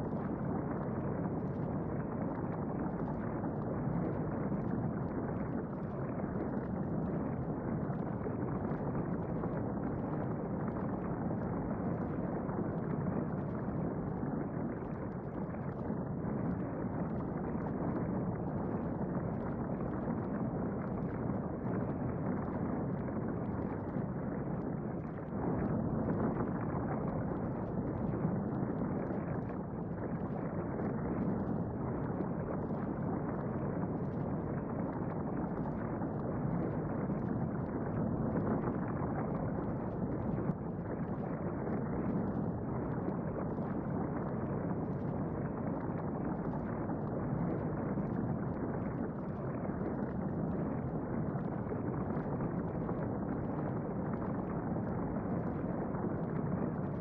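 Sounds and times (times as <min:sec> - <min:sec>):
muffled rumbling with gurgle: 0:00.0 - 0:57.0.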